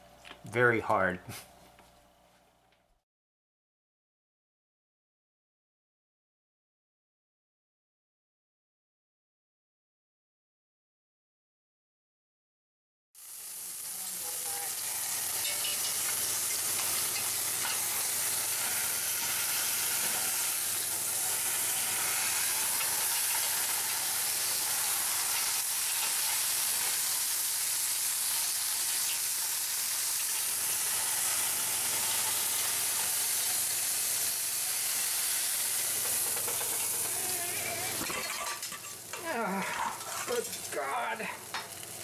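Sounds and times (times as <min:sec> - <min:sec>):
juices sizzling in a pot: 0:13.2 - 0:42.0
metal tongs scraping a pot: 0:15.4 - 0:19.3.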